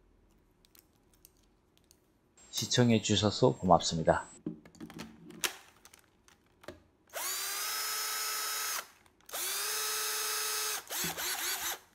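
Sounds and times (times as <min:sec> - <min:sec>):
cordless drill motor whining: 0:07.1 - 0:11.9.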